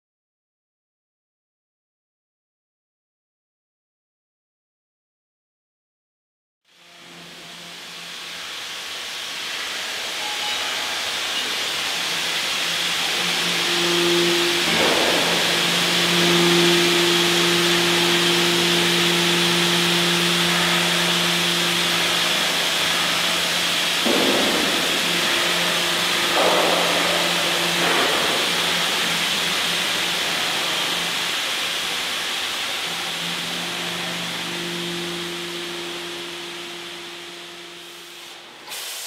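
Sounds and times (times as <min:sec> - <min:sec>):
machine hum: 0:06.7 - 0:38.6
steam hissing: 0:07.5 - 0:39.0.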